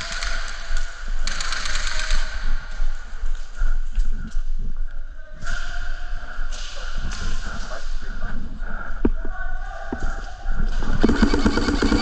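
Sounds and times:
airsoft guns firing: 0.0s - 2.5s, 10.8s - 12.0s.

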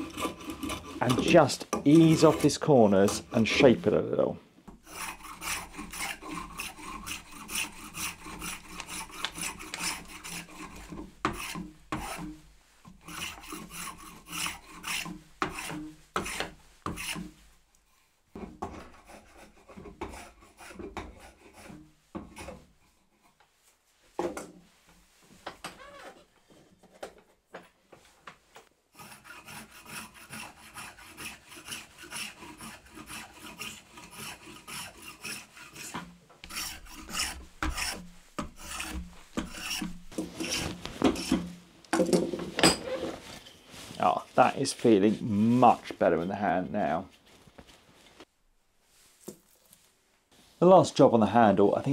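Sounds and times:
spokeshave scraping wood: 0.0s - 4.0s, 4.7s - 17.4s, 29.0s - 41.6s.

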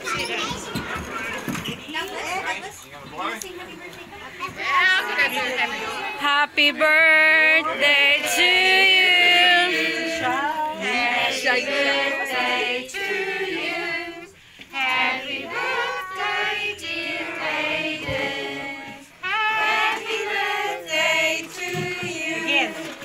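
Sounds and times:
group singing together: 4.8s - 23.0s.

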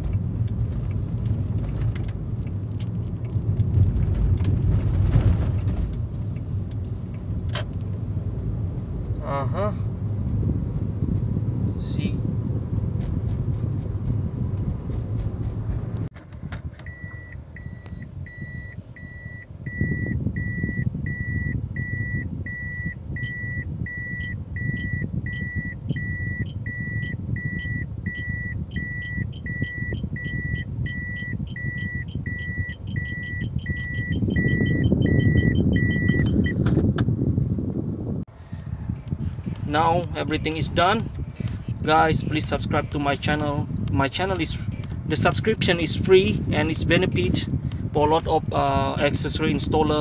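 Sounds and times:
car engine rumble: 0.0s - 50.0s
road noise: 0.0s - 50.0s
parking sensor beeping: 16.8s - 36.6s.

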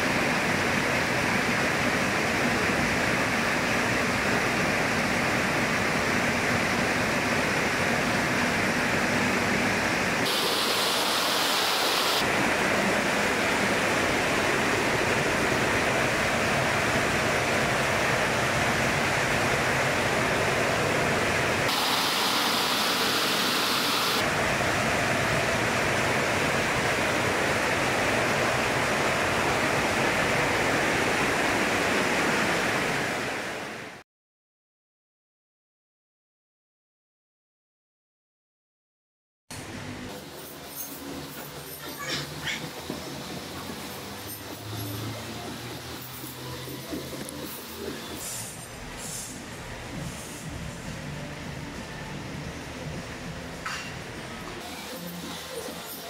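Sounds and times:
water jetting rushing: 0.0s - 33.9s.

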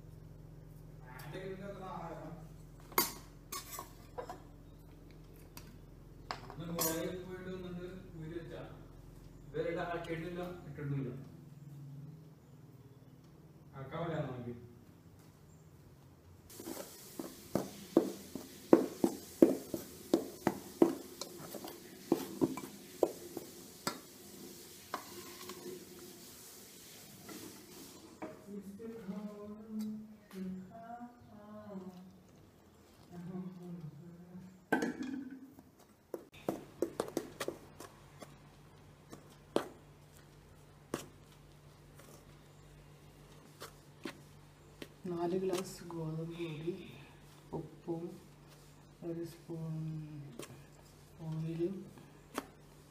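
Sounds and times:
low steady hum: 0.0s - 52.9s
metal spoon scraping a pot: 3.0s - 4.4s, 24.9s - 25.8s.

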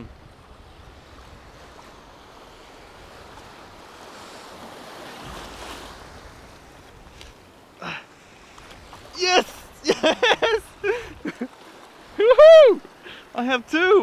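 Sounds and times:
wind on microphone: 0.0s - 3.8s
sea water splashing: 0.0s - 14.0s.

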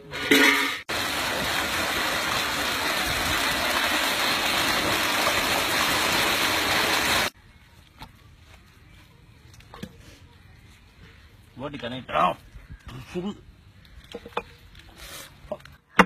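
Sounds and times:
running water rushing: 0.9s - 7.3s.

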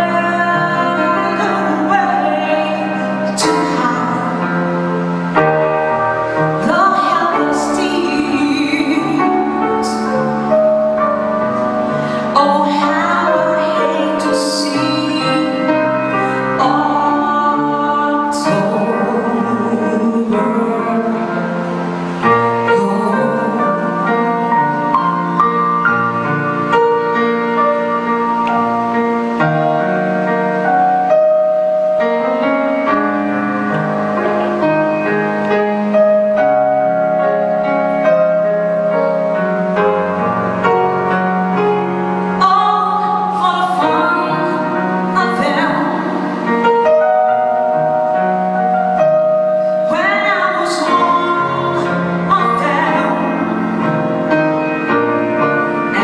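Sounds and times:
woman singing a ballad: 0.0s - 4.7s, 6.6s - 10.6s, 11.6s - 24.8s, 42.4s - 46.7s, 49.8s - 53.6s
piano accompaniment: 0.0s - 56.0s.

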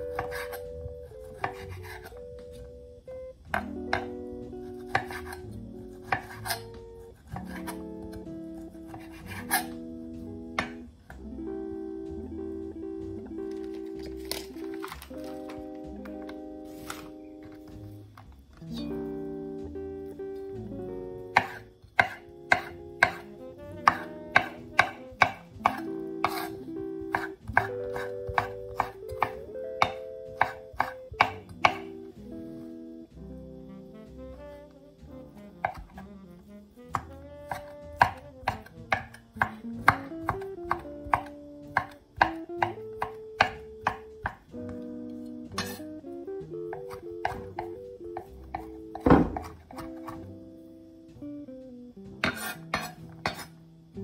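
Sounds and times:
gentle background music: 0.0s - 54.0s
knife knocking on wooden board: 10.6s - 10.8s, 21.4s - 23.2s, 23.8s - 26.5s, 27.1s - 31.9s, 35.6s - 36.0s, 36.9s - 44.4s, 46.8s - 50.2s.

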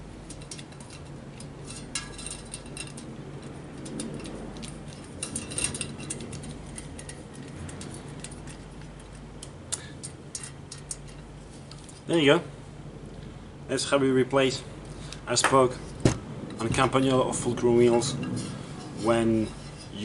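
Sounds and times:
low steady hum: 0.0s - 20.0s
metallic clicks of tool on bicycle hub: 0.2s - 11.9s.

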